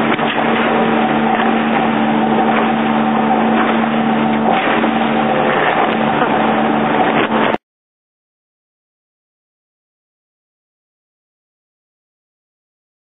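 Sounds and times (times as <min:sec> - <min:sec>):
boat engine droning: 0:00.0 - 0:07.6
rushing wind and water: 0:00.0 - 0:07.6.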